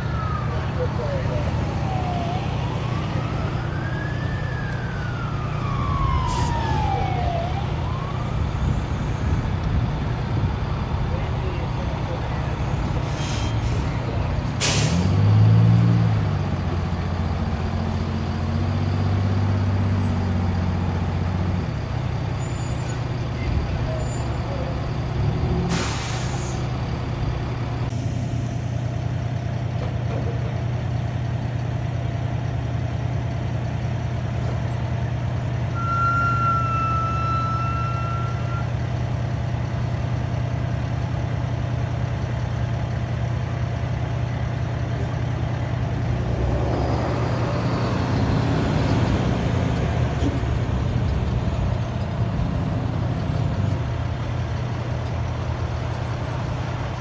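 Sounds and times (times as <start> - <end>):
diesel engine droning: 0.0 - 57.0
truck engine pulling up: 0.0 - 57.0
air hiss: 25.7 - 26.6.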